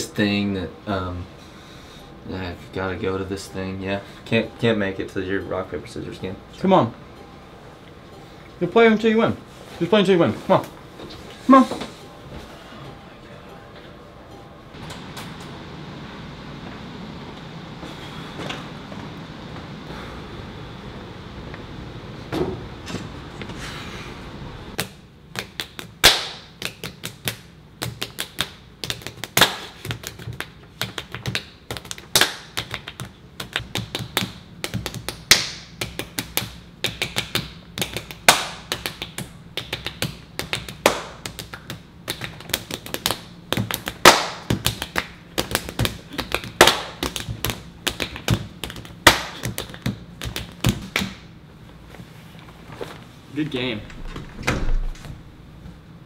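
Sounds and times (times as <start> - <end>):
low room hum: 0.0 - 56.0
hands tapping and slapping: 24.8 - 51.2.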